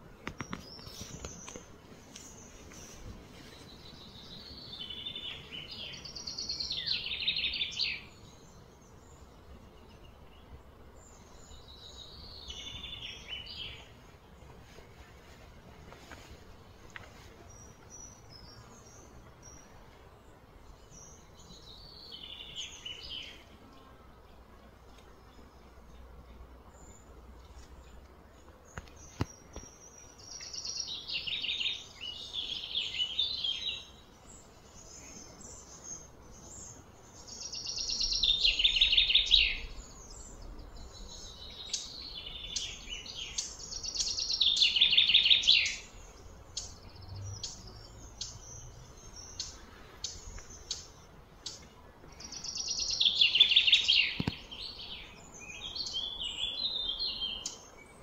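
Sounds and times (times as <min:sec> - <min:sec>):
birds chirping rapidly: 0:25.2 - 0:58.0.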